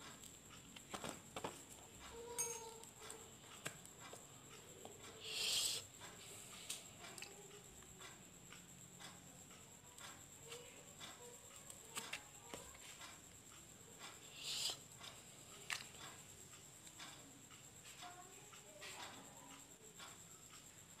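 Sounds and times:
short hiss: 5.2s - 5.8s, 14.3s - 14.8s.

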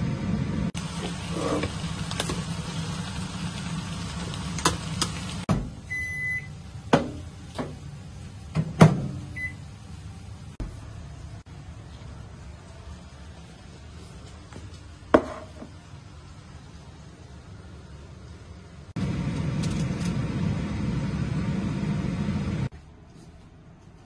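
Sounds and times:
microwave humming: 0.0s - 13.1s, 16.8s - 22.7s
microwave beep: 5.8s - 6.6s, 9.3s - 9.7s.

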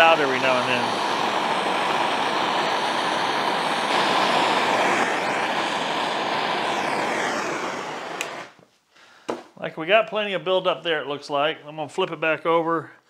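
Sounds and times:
gas torch flame hissing: 0.0s - 8.6s
torch click: 0.0s - 8.6s.

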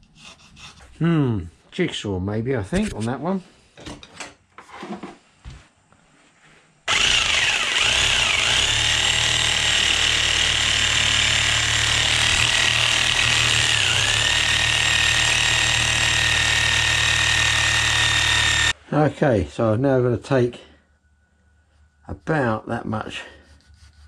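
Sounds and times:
jigsaw cutting wood: 6.9s - 18.8s.

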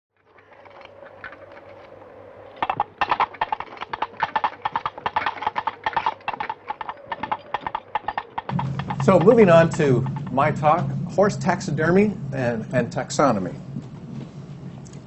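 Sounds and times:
horse hooves clip-clopping: 0.3s - 11.6s.

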